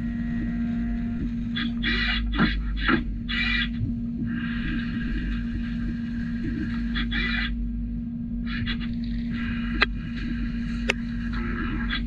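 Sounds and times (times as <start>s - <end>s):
high cutting whine: 0.0s - 12.0s
machine hum: 0.0s - 12.0s.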